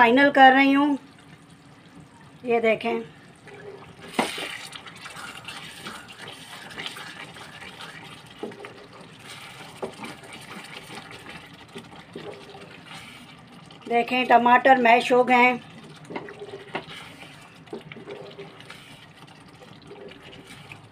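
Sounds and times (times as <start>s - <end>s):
spoon stirring thick gravy: 3.5s - 14.4s, 15.6s - 20.9s.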